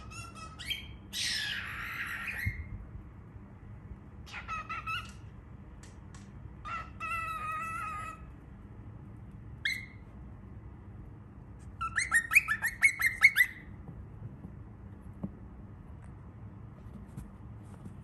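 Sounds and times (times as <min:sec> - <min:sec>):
cockatiel calling and chirping: 0:00.0 - 0:02.8, 0:04.2 - 0:05.3, 0:06.6 - 0:08.3, 0:09.6 - 0:10.0, 0:11.7 - 0:13.8.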